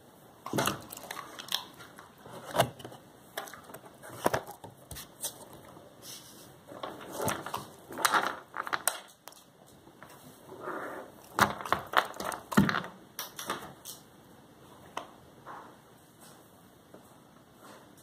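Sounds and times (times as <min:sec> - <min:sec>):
dog crunching nuts: 0:06.8 - 0:09.5.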